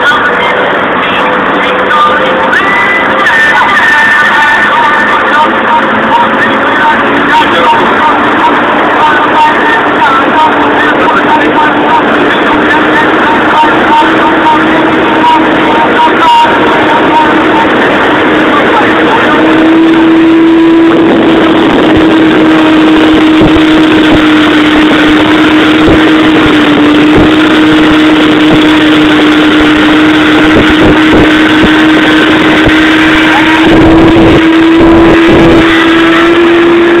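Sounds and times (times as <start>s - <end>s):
motorcycle engine at high revs: 0.0s - 37.0s
wind buffeting microphone: 9.8s - 37.0s.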